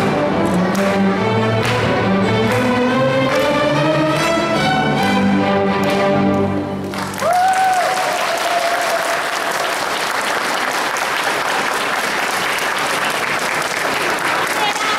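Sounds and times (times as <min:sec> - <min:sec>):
audience applause: 0:06.8 - 0:14.9
person whooping: 0:07.2 - 0:09.2.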